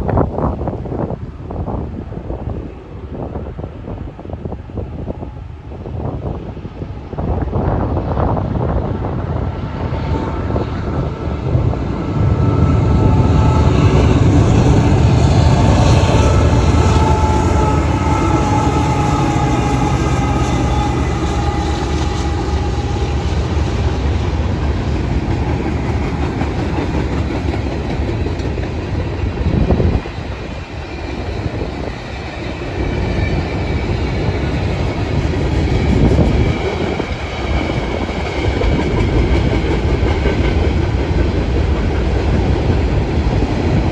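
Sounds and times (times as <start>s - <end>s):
locomotive engine rumble: 8.4s - 43.9s
train wheels clicking over rail joints: 21.2s - 43.9s.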